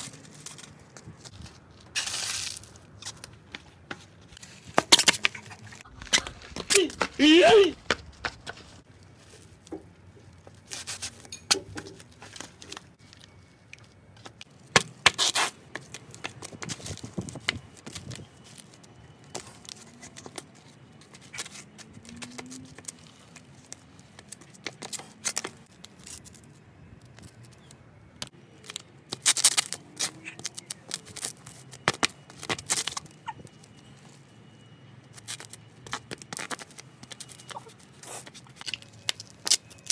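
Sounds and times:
brittle objects crunching underfoot: 0.0s - 7.1s, 8.0s - 34.2s, 35.1s - 39.9s
flip-flops slapping on concrete: 2.0s - 8.8s, 14.3s - 18.2s, 28.2s - 33.5s.

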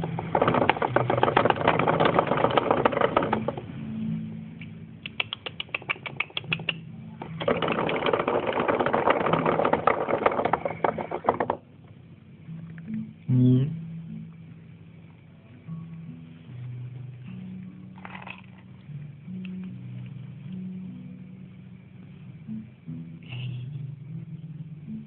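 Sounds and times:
hamster clicking and scratching: 0.0s - 3.6s, 5.1s - 11.6s
low steady hum: 0.0s - 25.0s.

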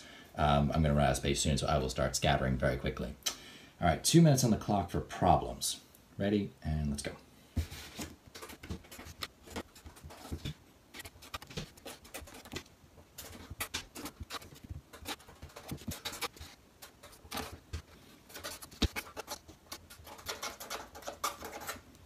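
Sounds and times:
paper handling: 7.6s - 21.9s
pen scratching on paper: 8.4s - 12.6s, 13.2s - 21.8s.

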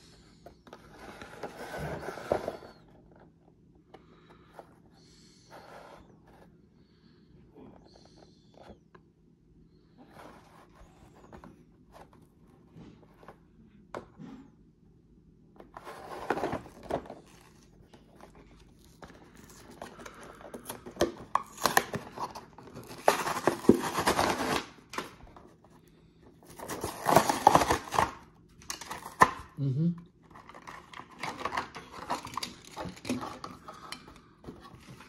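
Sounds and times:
plastic packaging crinkling and tearing: 15.9s - 25.2s, 26.4s - 29.6s, 30.3s - 33.8s.

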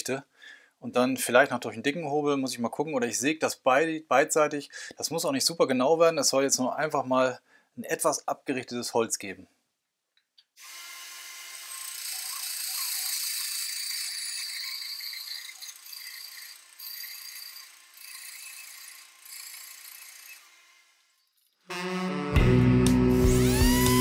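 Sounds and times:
bandsaw cutting wood: 10.6s - 22.5s, 23.1s - 24.0s.

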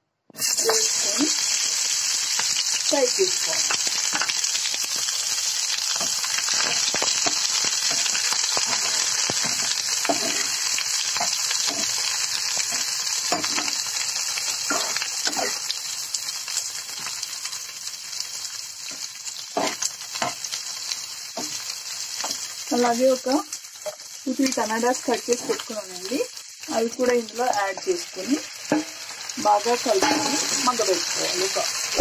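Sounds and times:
onions sizzling in oil: 0.4s - 32.0s
metal spatula scraping pan: 6.0s - 10.6s, 29.9s - 30.8s.

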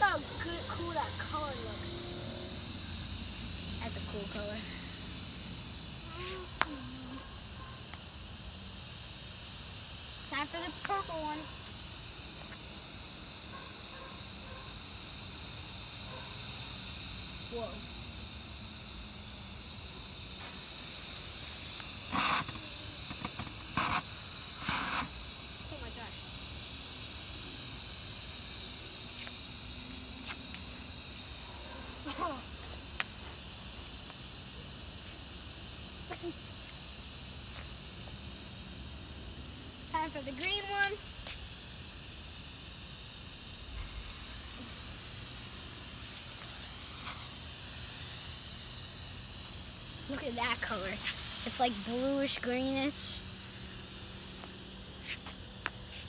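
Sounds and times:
fuse hissing as it catches: 0.0s - 13.4s, 14.8s - 38.9s, 39.8s - 56.0s
smoke bombs hissing: 0.0s - 56.0s.

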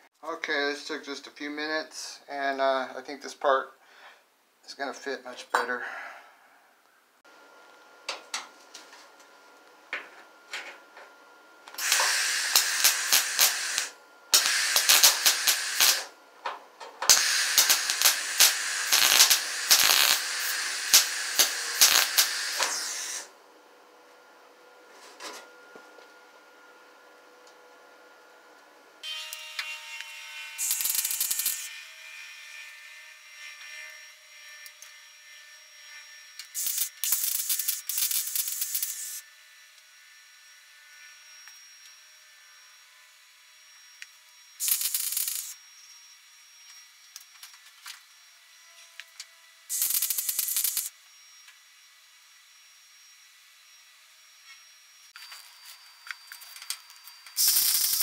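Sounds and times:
welder hum: 7.3s - 58.0s
welding arc crackling: 11.7s - 16.2s, 17.0s - 23.3s, 30.6s - 31.7s, 36.5s - 39.2s, 44.6s - 45.6s, 49.7s - 51.0s, 56.4s - 58.0s.

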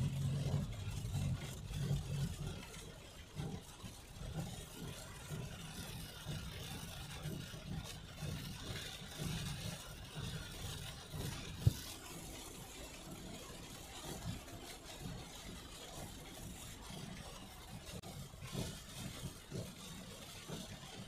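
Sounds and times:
heavy rain on car: 0.0s - 21.0s
low uneven rumble: 0.0s - 21.0s
tyres on wet road: 0.0s - 21.0s.

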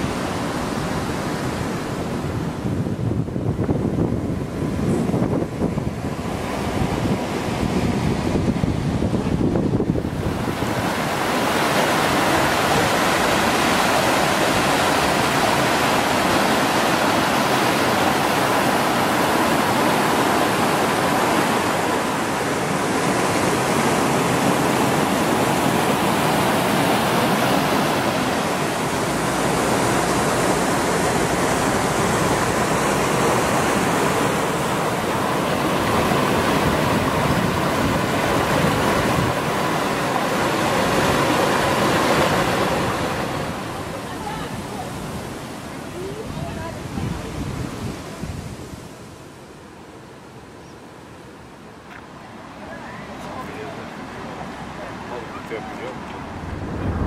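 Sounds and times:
waterfall rushing over rocks: 10.0s - 47.4s.

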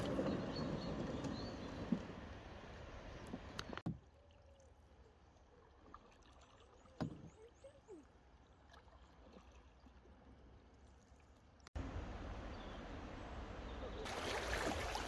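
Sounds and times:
water around canoe hull: 0.0s - 15.0s.

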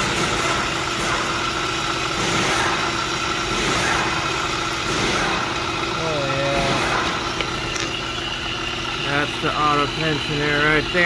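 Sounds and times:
car engine idling: 0.0s - 11.0s
belt and pulleys high tone: 5.9s - 11.0s.

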